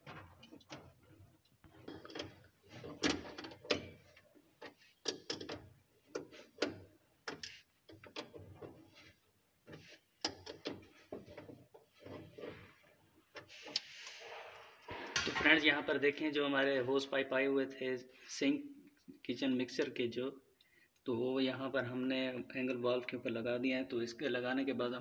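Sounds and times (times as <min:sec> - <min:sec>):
metal nut clicking and scraping: 0:00.4 - 0:12.5.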